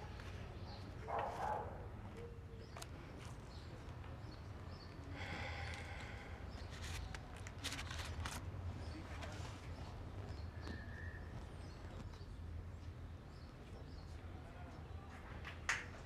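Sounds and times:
short clicks and rustles: 6.7s - 8.6s.

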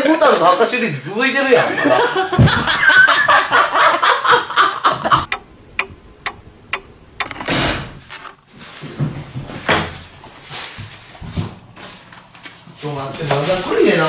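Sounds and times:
men laughing loudly: 1.5s - 5.3s
clock-like ticks: 5.2s - 7.5s.

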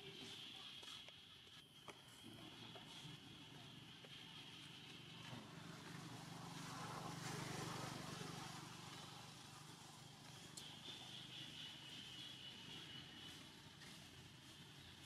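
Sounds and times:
vehicle engine passing by: 5.1s - 11.2s.

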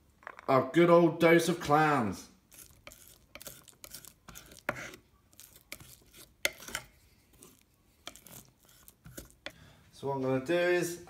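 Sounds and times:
utensils clicking and scraping: 2.5s - 9.6s.

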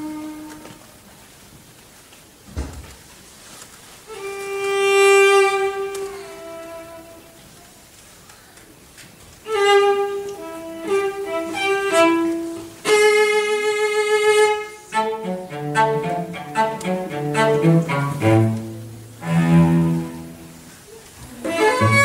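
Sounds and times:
cello ensemble playing: 4.1s - 7.4s, 9.4s - 22.0s.

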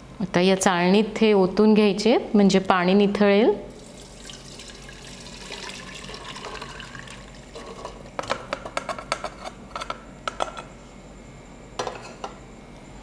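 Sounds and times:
water pouring through strainer: 3.8s - 7.8s.

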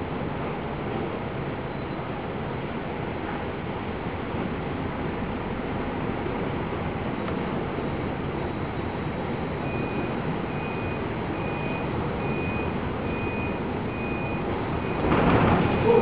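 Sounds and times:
heavy sea: 0.0s - 16.0s
wind: 0.0s - 16.0s
electronic alarm beeps: 9.6s - 15.1s.

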